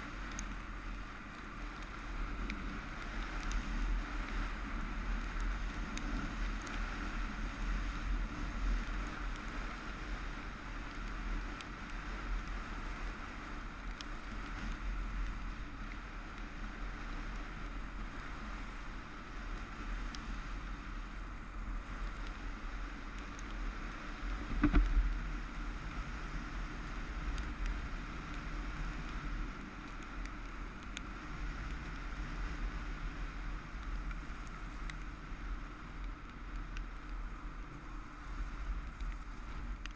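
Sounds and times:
motorcycle engine and tyre noise: 0.0 - 39.9
wind buffeting on microphone: 0.0 - 39.9.

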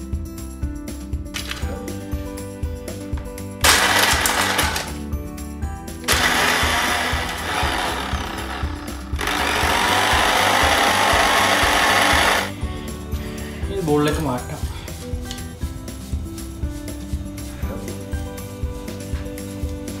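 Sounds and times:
electric blender grinding biscuits: 3.6 - 5.0, 6.1 - 12.6.

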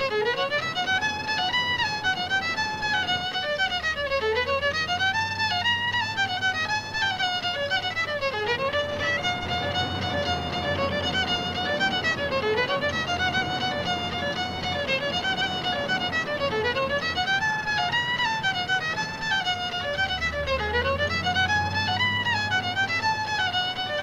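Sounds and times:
fiddle playing quick tune: 0.0 - 24.0.

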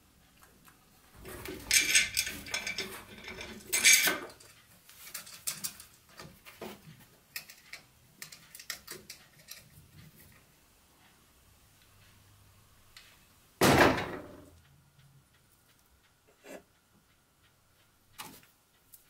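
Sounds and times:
metal parts clattering: 1.4 - 4.3
small clicks and taps: 3.4 - 10.5, 14.5 - 19.0.

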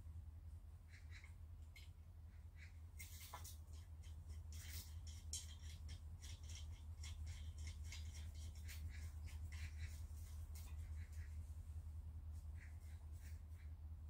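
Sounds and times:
steady low hum: 0.0 - 14.0
metal clicks and scrapes: 3.0 - 9.8.

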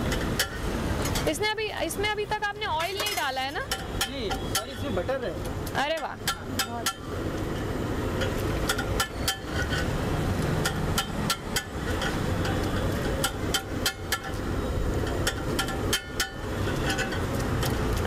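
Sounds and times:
spatula scraping a metal griddle: 8.2 - 10.0.

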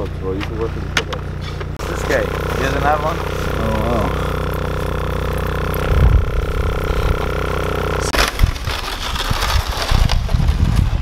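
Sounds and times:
vehicle engine humming: 0.0 - 8.2.

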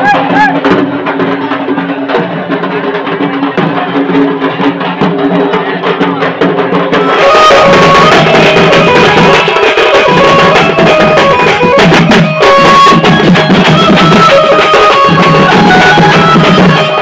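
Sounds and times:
fast dense drumming: 0.0 - 17.0
high melody line: 7.0 - 17.0.

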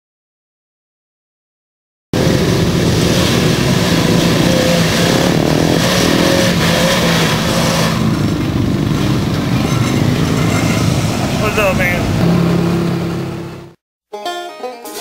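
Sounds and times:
car engine under throttle: 2.2 - 13.8.

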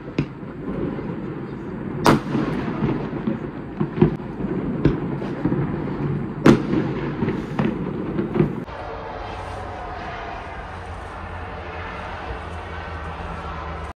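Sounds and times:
distant fireworks rumble and crackle: 0.0 - 13.9
fireworks bangs: 0.0 - 13.9.

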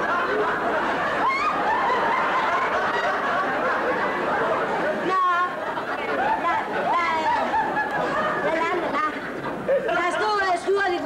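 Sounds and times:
audience laughing: 0.0 - 10.8.

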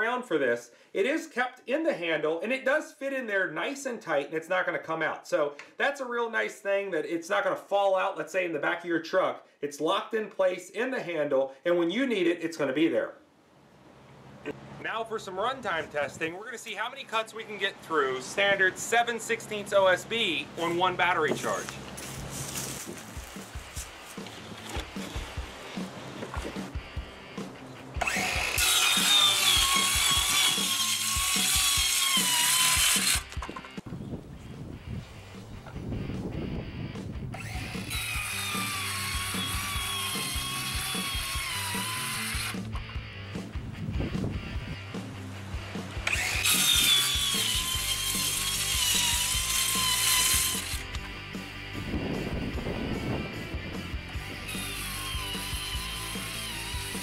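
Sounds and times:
background music with a beat: 23.1 - 24.2
circular saw cutting board: 27.9 - 33.8, 37.4 - 42.9, 46.0 - 51.0, 54.2 - 57.0.

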